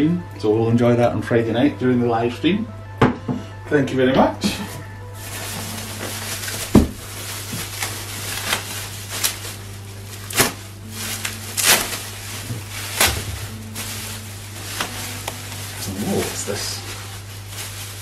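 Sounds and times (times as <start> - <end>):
plastic and bubble wrap rustling: 4.2 - 18.0.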